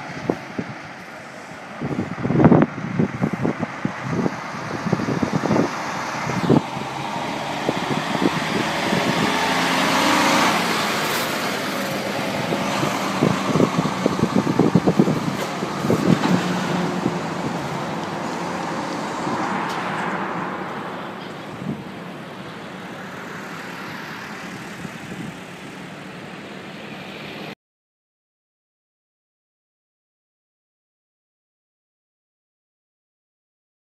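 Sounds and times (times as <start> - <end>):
truck diesel engine: 0.0 - 27.6
trailers rattling and clattering: 0.1 - 26.2.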